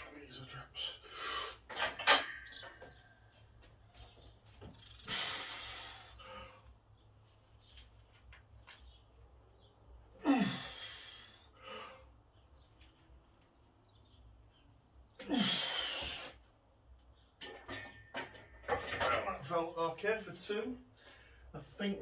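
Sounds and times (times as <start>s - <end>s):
person grunting: 10.2s - 10.8s, 15.2s - 15.7s.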